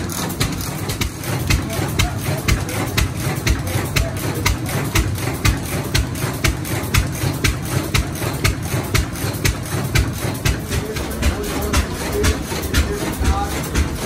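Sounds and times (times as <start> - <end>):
sharp rhythmic clicks: 0.0 - 14.0
stationary engine thumping rumble: 0.0 - 14.0.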